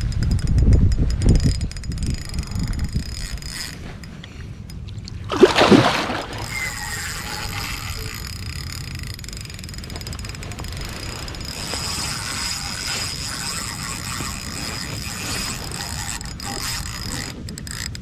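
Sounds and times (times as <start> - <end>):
water and wind noise: 0.0 - 18.0
fish splashing: 5.1 - 8.0.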